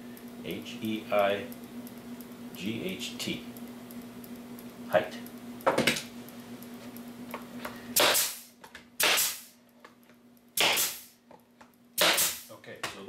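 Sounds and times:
pneumatic stapler firing: 8.0 - 9.6, 10.6 - 11.2, 12.0 - 12.5.

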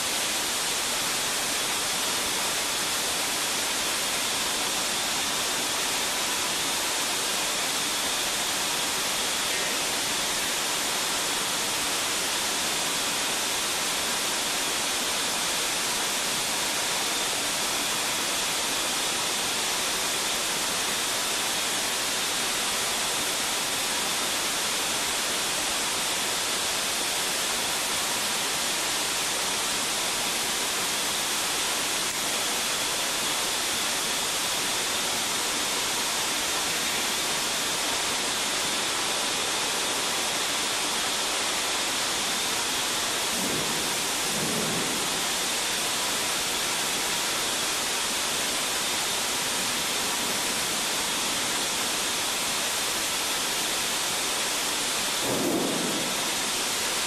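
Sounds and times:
fire roaring: 42.2 - 48.6, 55.0 - 57.0.

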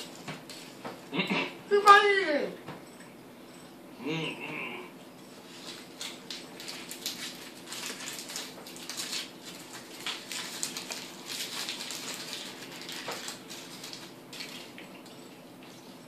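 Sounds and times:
foil wrappers crinkling: 5.5 - 15.1.

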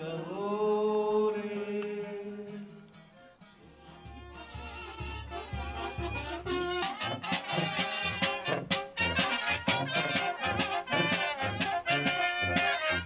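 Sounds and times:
brass band music: 3.8 - 13.0.

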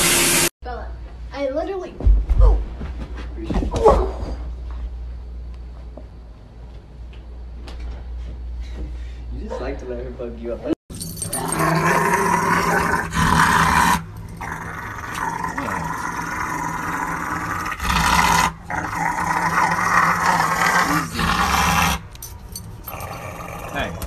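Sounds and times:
dog growl-howling: 11.2 - 22.1, 22.9 - 24.0.

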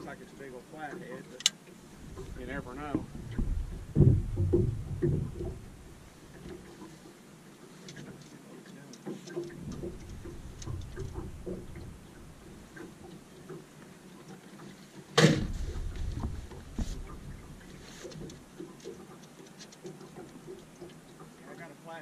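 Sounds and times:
footsteps on metal boat deck: 0.9 - 7.2, 9.0 - 21.4
light ticking: 8.9 - 14.4.

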